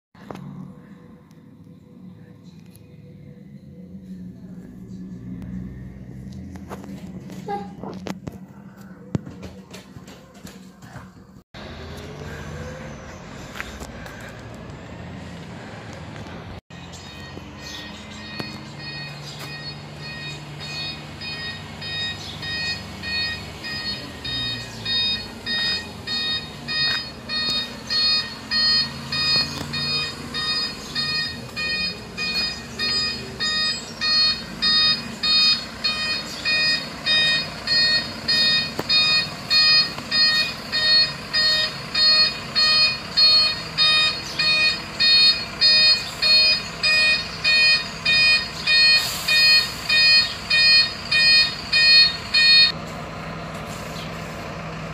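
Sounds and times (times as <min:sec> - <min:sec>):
truck engine running low: 0:11.2 - 0:54.9
truck reversing alarm beeping: 0:11.6 - 0:16.0, 0:16.7 - 0:54.9.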